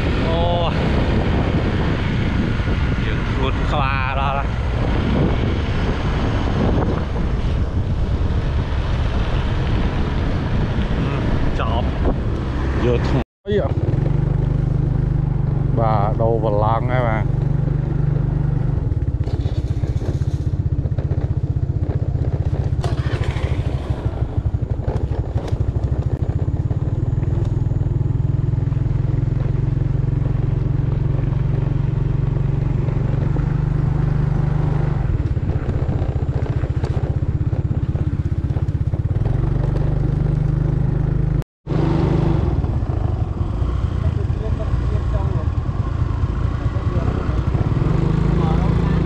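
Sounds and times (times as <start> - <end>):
scooter engine running: 12.0 - 49.0.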